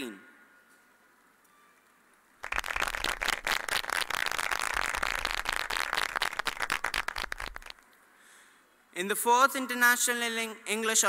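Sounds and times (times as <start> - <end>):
audience clapping: 2.4 - 7.8.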